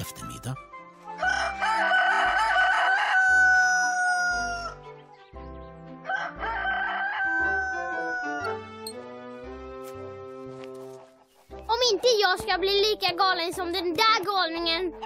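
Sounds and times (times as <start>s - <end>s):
rooster crowing: 1.2s - 4.8s, 6.0s - 8.6s.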